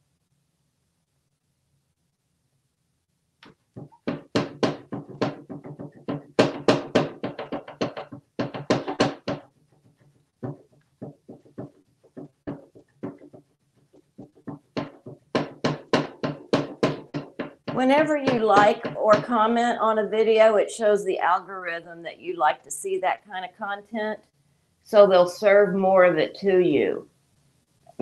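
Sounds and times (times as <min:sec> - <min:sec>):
parrot knocking against wood: 0:03.4 - 0:19.5.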